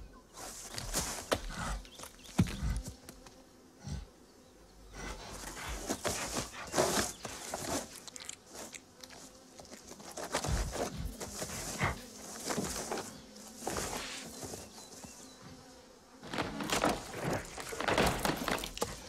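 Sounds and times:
claws scraping on bark: 0.4s - 3.4s, 5.0s - 15.6s, 16.2s - 19.0s
dull thumps: 16.2s - 19.0s.

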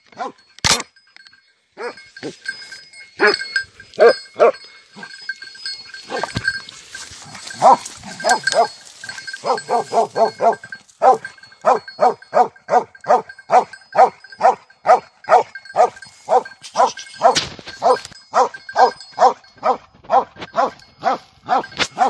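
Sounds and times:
dog barking: 0.1s - 0.4s, 1.8s - 2.0s, 3.2s - 4.6s, 7.5s - 8.8s, 9.4s - 22.0s.

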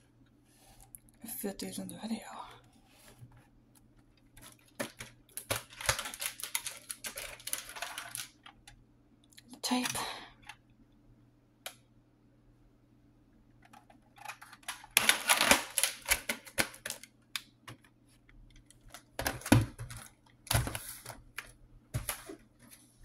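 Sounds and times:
plastic cassette case clattering: 4.4s - 8.7s, 13.6s - 17.8s, 18.5s - 22.2s.

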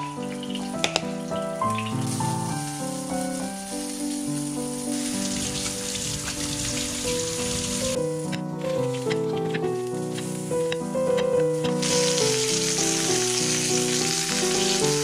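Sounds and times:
food sizzling in a pan: 0.0s - 8.0s, 11.5s - 15.0s
background music: 0.0s - 15.0s.

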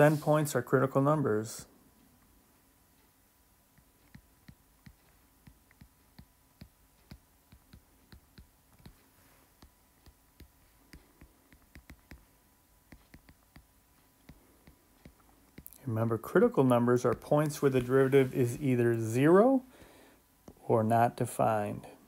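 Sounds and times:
faint steady hum: 0.0s - 22.0s
stylus tapping on tablet: 3.7s - 15.8s, 16.7s - 17.9s, 20.4s - 20.6s.

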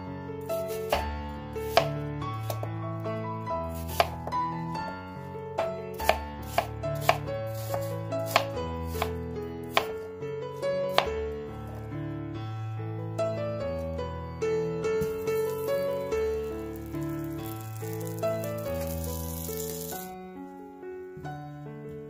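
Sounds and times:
background music with sustained notes: 0.0s - 22.0s
knife chopping on plastic board: 0.6s - 1.1s, 1.7s - 2.7s, 3.8s - 4.4s, 5.6s - 10.0s.

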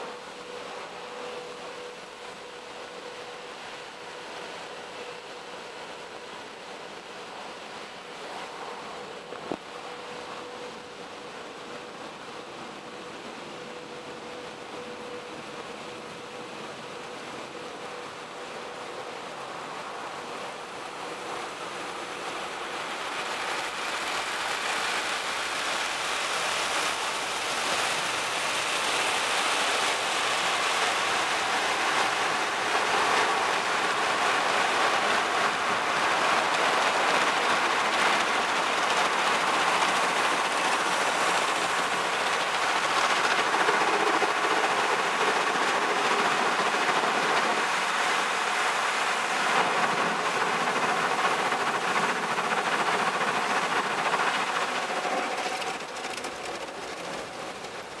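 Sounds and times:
car wash water spray drumming: 23.4s - 58.0s.

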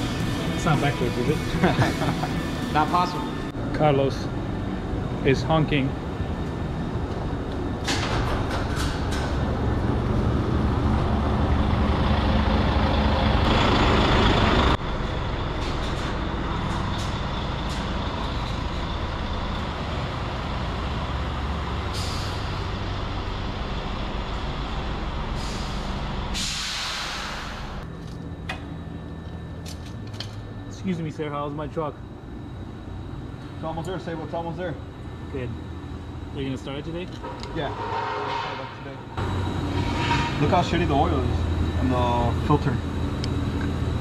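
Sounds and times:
diesel truck engine idling: 9.4s - 29.5s
air hissing release: 21.9s - 22.6s, 25.4s - 27.8s.

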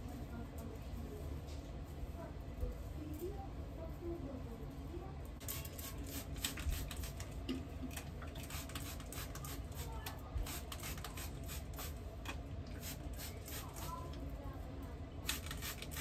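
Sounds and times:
spray bottle spraying: 5.4s - 7.2s, 8.4s - 12.0s, 12.8s - 14.0s, 15.2s - 16.0s.

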